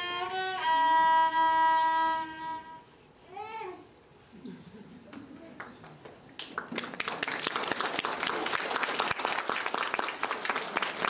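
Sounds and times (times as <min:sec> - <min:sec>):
audience applauding: 0:05.6 - 0:11.0.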